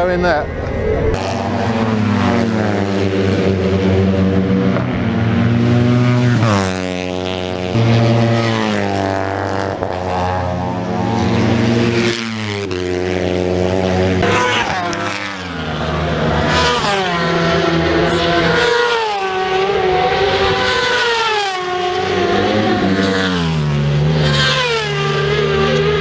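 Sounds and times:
racing motorcycle engines passing: 0.0 - 26.0.

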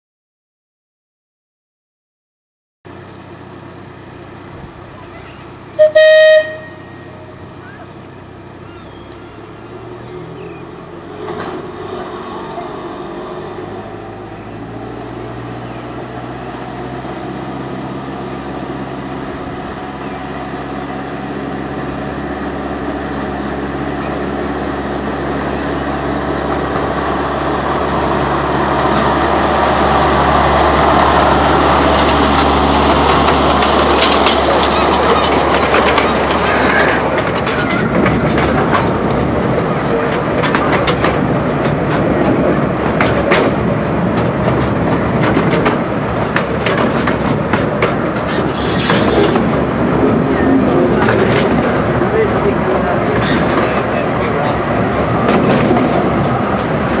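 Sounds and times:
wheel and rail noise: 2.9 - 57.0
train horn toot: 5.8 - 7.4
miniature locomotive engine running: 18.6 - 49.5.

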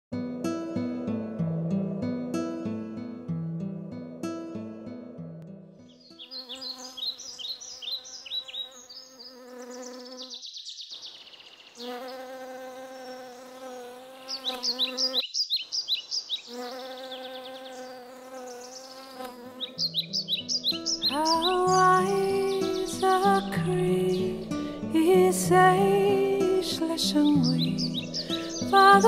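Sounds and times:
bee buzzing: 6.1 - 10.5, 11.7 - 29.0.

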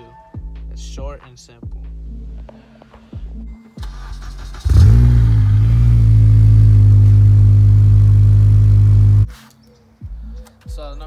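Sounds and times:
car engine starting and idling: 3.8 - 9.3.

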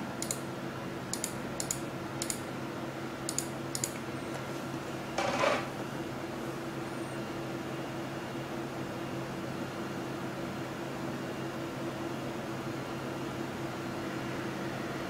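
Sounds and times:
mouse and keyboard clicks: 1.1 - 2.4, 3.3 - 4.0.

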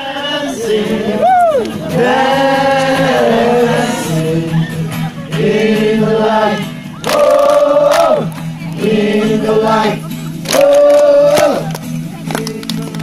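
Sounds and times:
crowd of men singing in chorus: 0.0 - 13.0.

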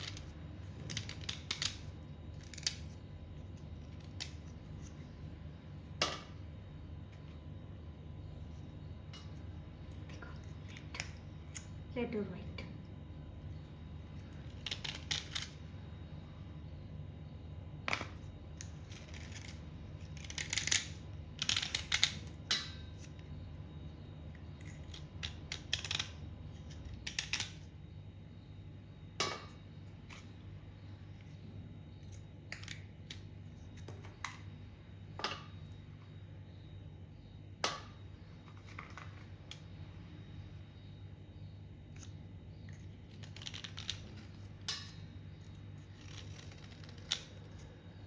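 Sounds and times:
low steady hum: 0.0 - 48.0
knife scraping clay: 18.0 - 23.5, 41.9 - 48.0.

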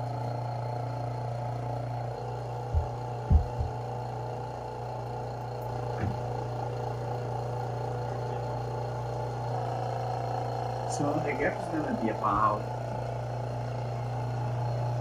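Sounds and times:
small pump humming: 0.0 - 15.0
sharp knocks: 2.7 - 3.8.

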